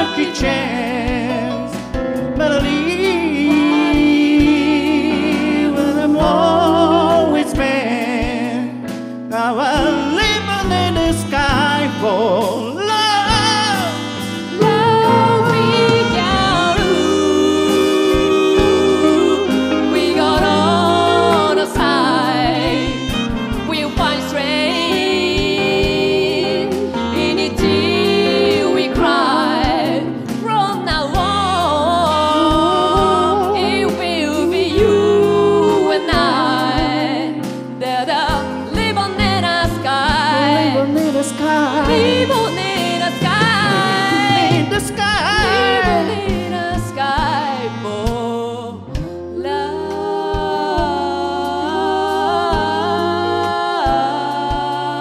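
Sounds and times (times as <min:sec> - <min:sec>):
steady drum beat: 0:00.0 - 0:09.1, 0:09.7 - 0:55.0
man singing: 0:00.0 - 0:22.0, 0:40.7 - 0:46.5
pop band playing: 0:00.0 - 0:55.0
woman singing: 0:14.4 - 0:48.8.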